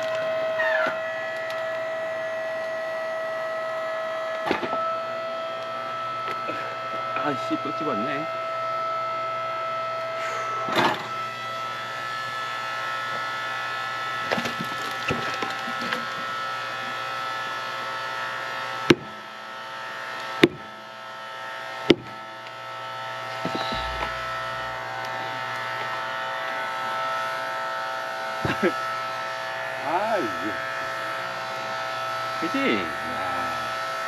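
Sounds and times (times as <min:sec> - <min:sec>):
hydraulic log splitter humming: 0:00.0 - 0:34.0
wood creaking and crackling: 0:23.3 - 0:26.2.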